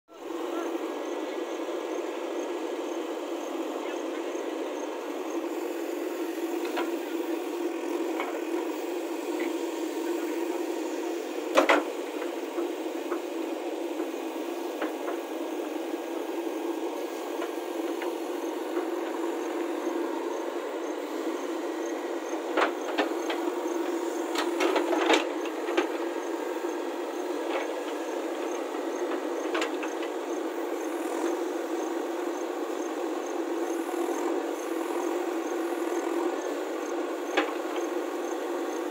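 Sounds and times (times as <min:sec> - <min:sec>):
backhoe loader running: 0:03.1 - 0:38.9.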